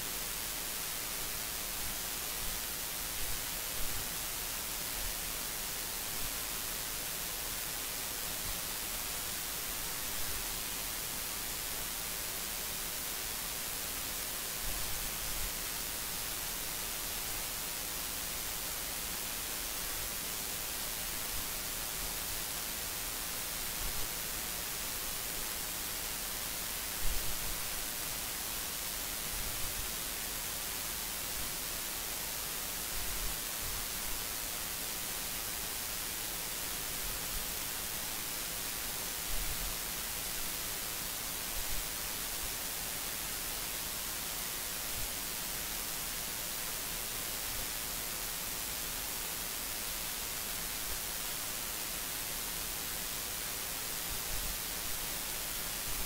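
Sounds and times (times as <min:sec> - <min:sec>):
electronic hiss: 0:00.0 - 0:56.0.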